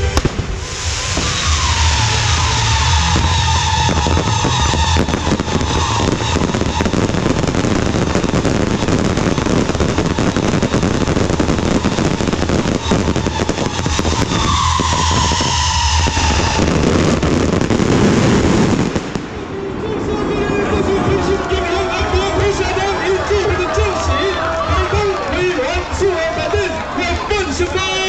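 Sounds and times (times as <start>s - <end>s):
tone sliding downward: 0.0s - 19.8s
fireworks crackling and popping: 0.0s - 26.8s.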